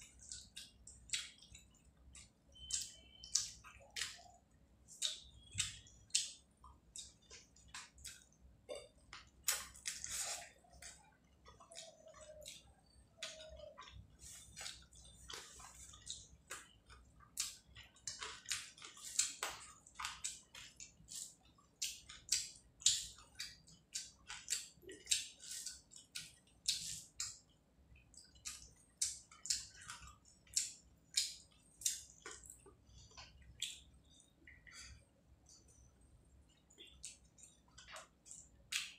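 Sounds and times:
person chewing: 0.0 - 38.9.

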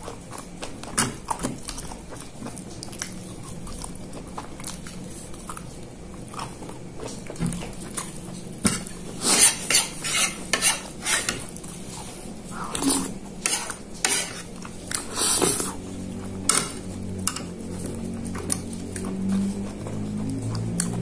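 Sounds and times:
metal spoon scraping a plate: 8.7 - 11.4, 12.6 - 15.8.

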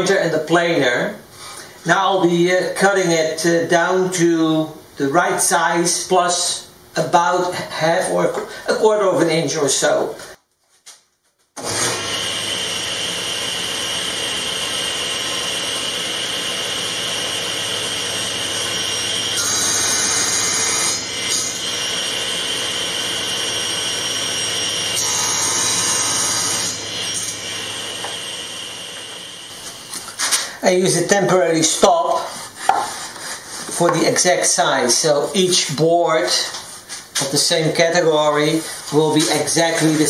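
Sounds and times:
table saw running: 11.6 - 30.2
saw blade cutting boards: 11.6 - 40.0.

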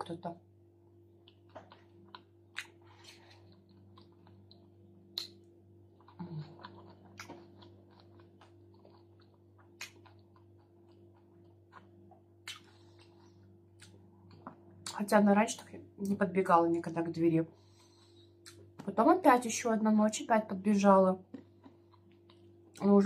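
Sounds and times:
faint steady hum: 0.0 - 23.0
wet mouth chewing smacks: 1.2 - 15.0, 18.4 - 18.8.

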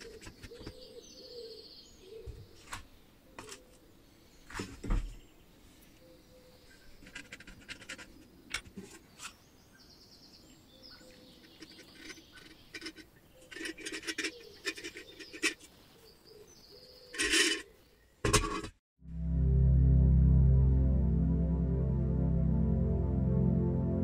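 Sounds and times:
metal filler cap unscrewing squeaks: 11.5 - 15.6.

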